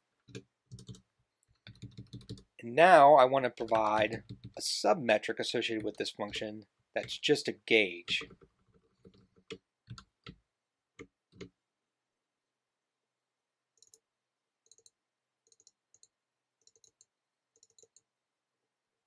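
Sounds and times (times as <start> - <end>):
computer keyboard keystrokes: 0.3 - 2.4, 3.6 - 4.6, 17.6 - 18.0.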